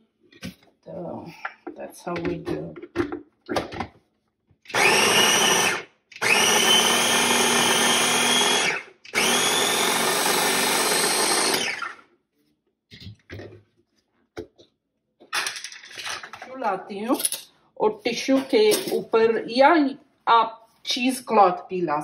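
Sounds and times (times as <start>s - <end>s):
mini chopper motor whirring: 4.7s - 11.9s.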